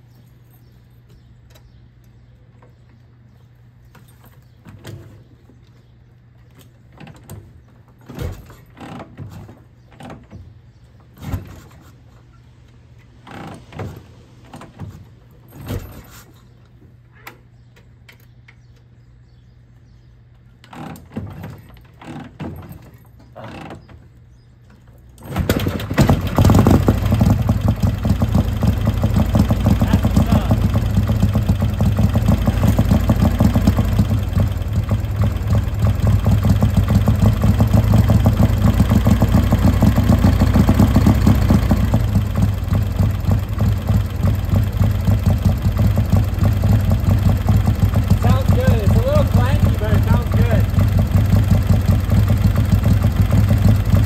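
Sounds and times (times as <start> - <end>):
motorcycle engine kick-start attempts: 6.6 - 11.8, 13.2 - 16.3, 20.6 - 54.0
motorcycle engine running: 25.5 - 54.0.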